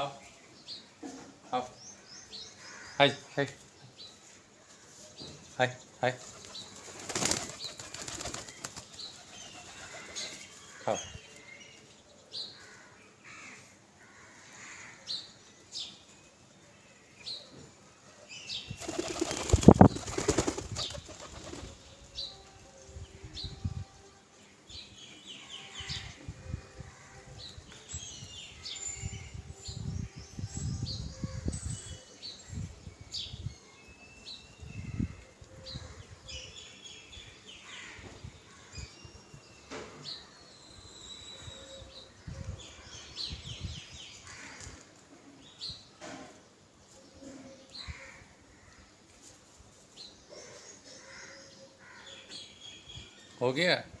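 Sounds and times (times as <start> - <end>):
pigeon wings flapping: 6.3 - 9.0, 18.8 - 21.8.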